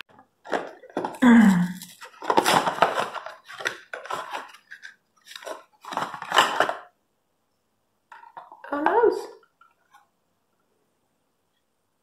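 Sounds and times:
cardboard box tearing: 0.6 - 6.8.

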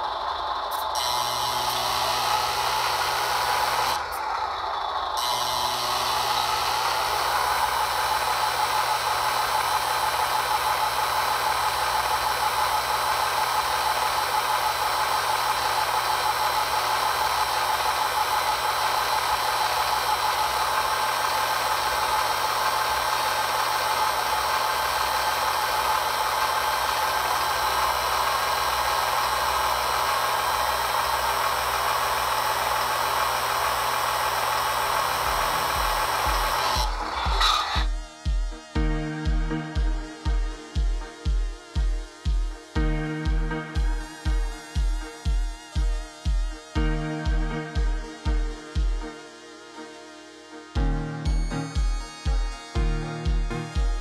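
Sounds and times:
electric hydraulic pump humming: 0.0 - 38.0.

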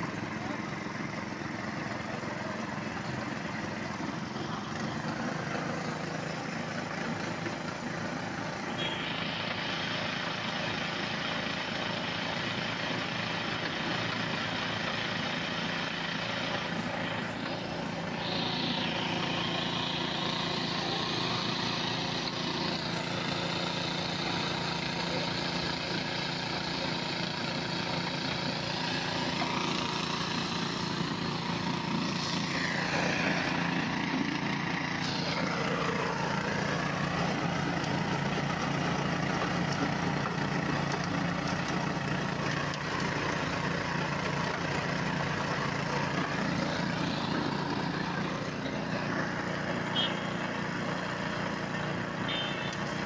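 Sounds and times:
small engine running: 0.0 - 53.0.

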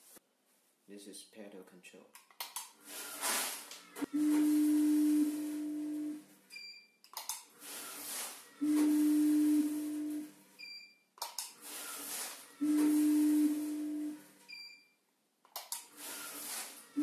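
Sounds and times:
machine feeder humming: 8.4 - 10.5, 11.6 - 14.4
short high beep: 12.6 - 14.9.

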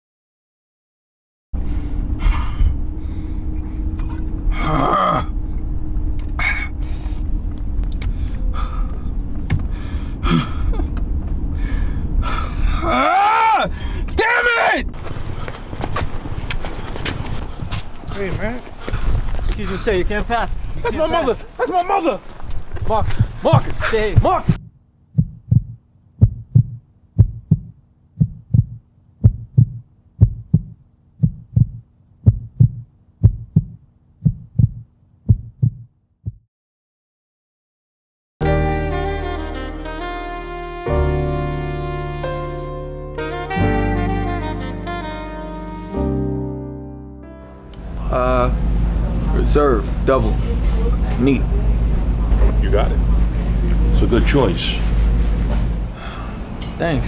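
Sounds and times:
person gasping breaths: 1.6 - 3.5, 8.0 - 10.8, 11.5 - 12.9, 13.7 - 14.2, 55.9 - 56.5
low rumble: 1.6 - 14.2, 22.4 - 35.8, 47.3 - 57.0
heartbeat thumps: 22.8 - 36.4.

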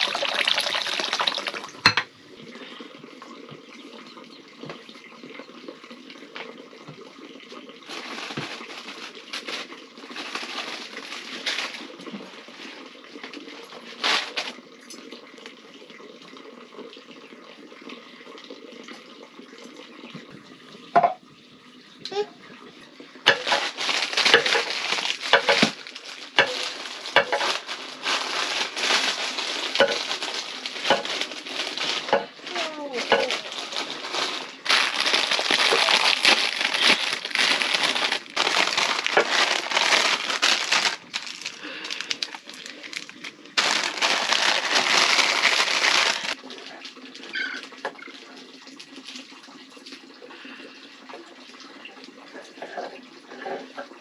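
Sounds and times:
plastic packet crinkling: 0.0 - 1.8, 7.9 - 12.8, 13.4 - 14.6, 23.3 - 46.8.

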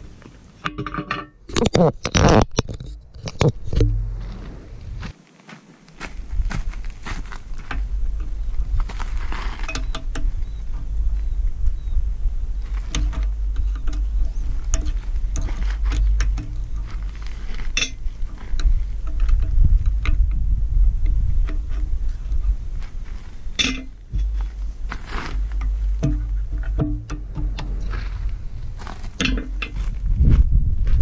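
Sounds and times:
metallic clinks and knocks: 0.6 - 4.0, 9.6 - 10.5, 12.8 - 20.4, 23.5 - 28.3, 29.1 - 29.9
wind rumble on microphone: 1.8 - 5.1, 6.0 - 31.0.

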